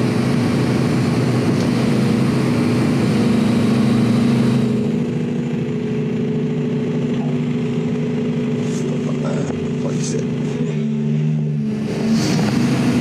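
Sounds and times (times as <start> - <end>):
excavator diesel engine hum: 0.0 - 13.0.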